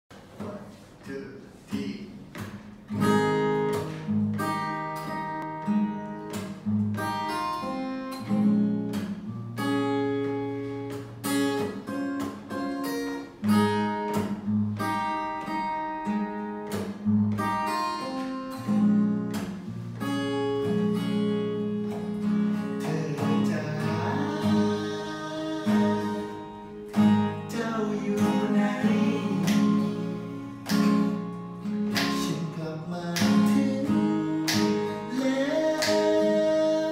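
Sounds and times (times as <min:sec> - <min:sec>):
acoustic guitar chords: 0:00.1 - 0:36.9
person singing: 0:22.8 - 0:26.6, 0:27.5 - 0:30.5, 0:32.2 - 0:36.9.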